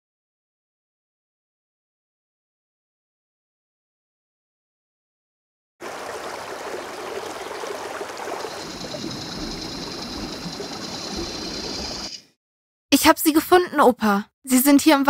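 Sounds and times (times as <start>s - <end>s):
stream water rushing: 5.8s - 12.2s
steady high whine: 8.4s - 12.3s.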